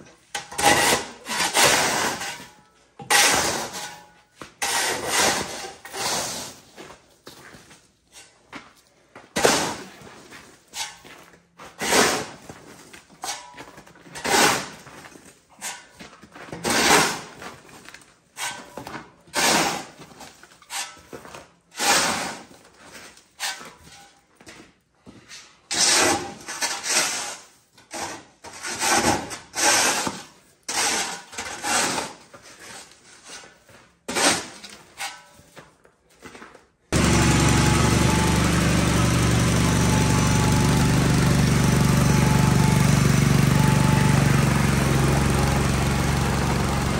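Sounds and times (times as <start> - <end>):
snow shovel scraping concrete: 0.4 - 7.0, 9.4 - 17.8, 18.4 - 23.9, 25.7 - 35.5, 36.9 - 46.9
snowblower engine running: 37.0 - 46.9.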